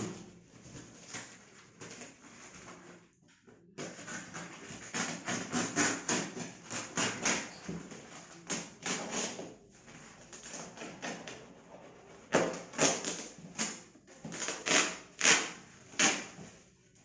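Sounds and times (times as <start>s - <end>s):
plastic wrapping crackling and ripping: 12.3s - 16.4s.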